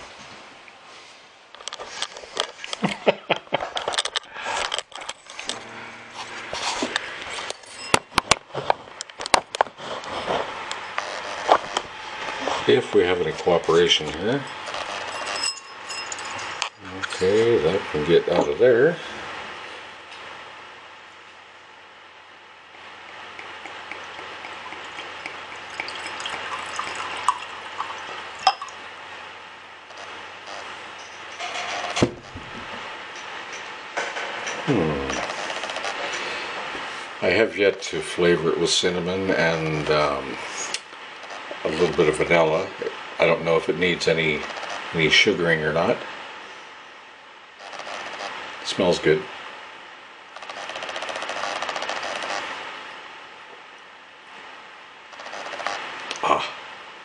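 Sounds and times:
handling noise rustling and clattering: 0:13.4 - 0:17.5
cider fizzing in a glass: 0:23.4 - 0:28.8.

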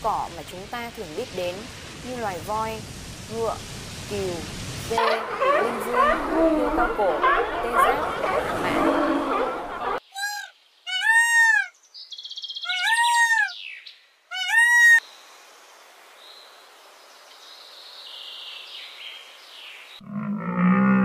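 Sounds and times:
faint steady hiss: 0:00.0 - 0:10.9, 0:15.0 - 0:20.0
peacock wailing calls: 0:05.0 - 0:11.8, 0:12.6 - 0:13.6, 0:14.3 - 0:15.0.

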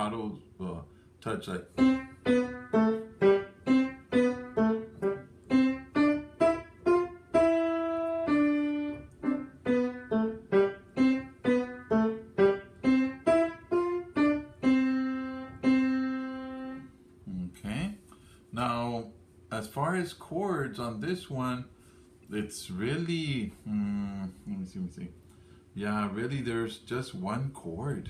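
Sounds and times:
piano melody: 0:01.7 - 0:16.9.

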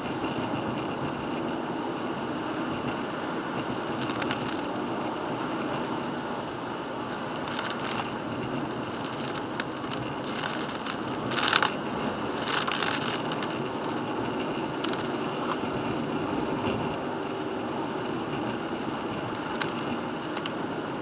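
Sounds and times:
tyre noise on wet road: 0:00.4 - 0:21.0
clicks and rattles: 0:04.0 - 0:04.7, 0:07.1 - 0:08.2, 0:08.9 - 0:11.8, 0:12.4 - 0:14.0, 0:14.8 - 0:15.6, 0:19.3 - 0:20.6.

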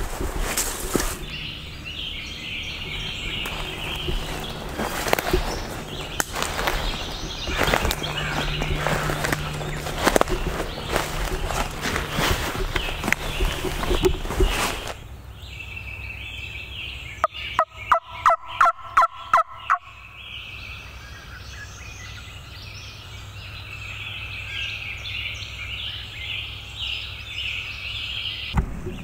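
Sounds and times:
background birdsong: 0:00.0 - 0:29.0
turkey yelps: 0:17.2 - 0:20.0.

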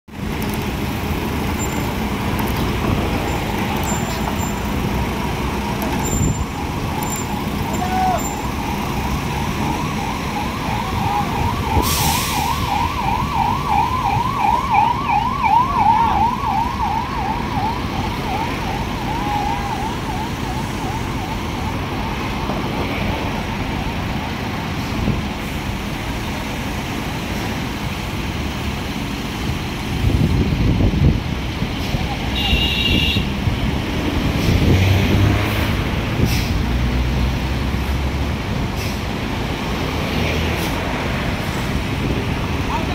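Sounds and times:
diesel crane engines running: 0:00.1 - 0:34.8, 0:35.6 - 0:42.9
siren-like warbling tone: 0:05.6 - 0:21.4.

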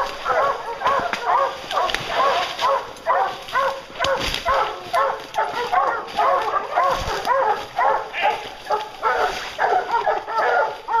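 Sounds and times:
hounds baying: 0:00.0 - 0:11.0.

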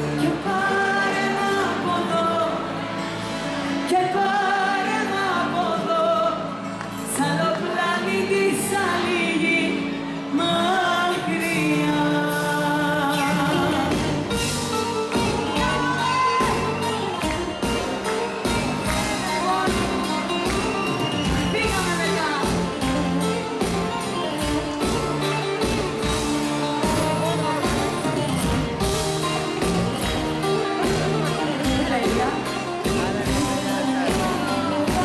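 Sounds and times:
woman singing into microphone: 0:00.0 - 0:02.8, 0:03.8 - 0:20.7, 0:30.6 - 0:35.0
live band with drums and guitar: 0:00.0 - 0:35.0.

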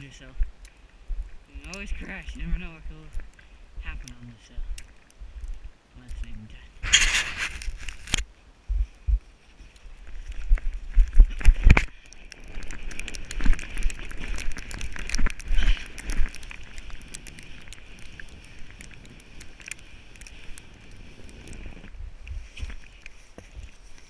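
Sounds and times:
sled scraping over snow: 0:06.8 - 0:08.2.

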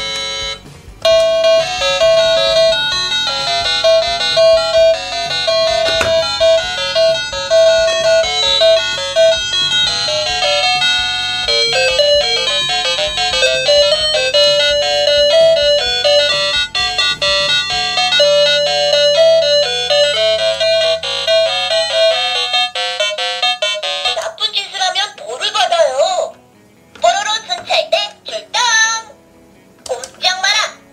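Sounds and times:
toy electronic tune: 0:00.0 - 0:24.4.

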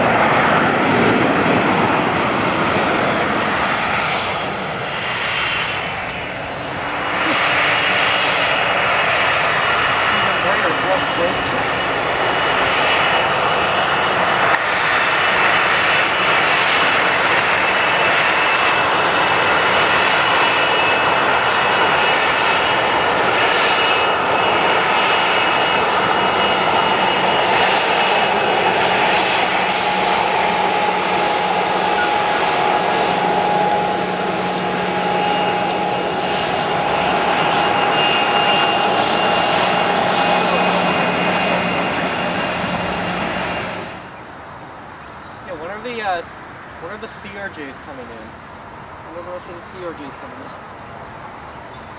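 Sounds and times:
jet engines rushing: 0:00.0 - 0:51.9
high whining tones: 0:19.6 - 0:44.2.

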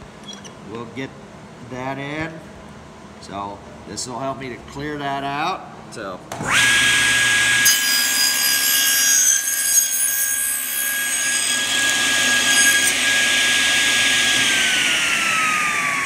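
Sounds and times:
saw blade cutting wood: 0:06.4 - 0:15.8
table saw whining: 0:06.4 - 0:16.0.

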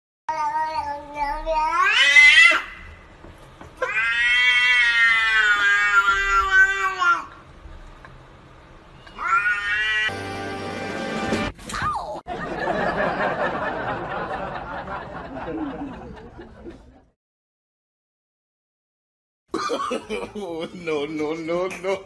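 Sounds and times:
cat meowing: 0:03.8 - 0:07.3, 0:09.1 - 0:10.2.

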